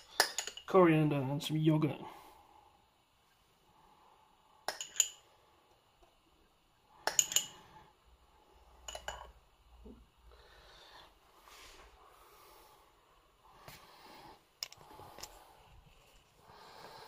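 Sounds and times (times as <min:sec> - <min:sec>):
spoon clinking against bowl: 0:07.0 - 0:07.6.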